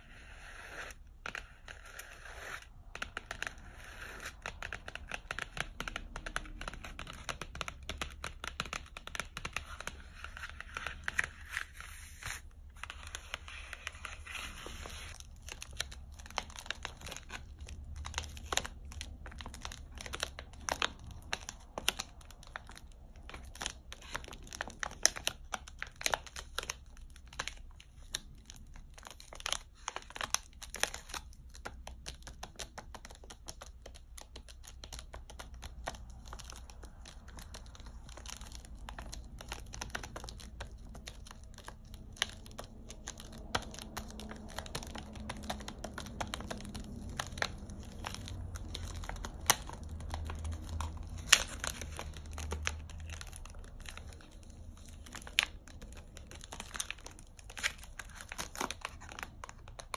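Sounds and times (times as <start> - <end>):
fingernails tapping on wrapper: 0.7 - 59.9
plastic wrapper crinkling: 0.9 - 59.9.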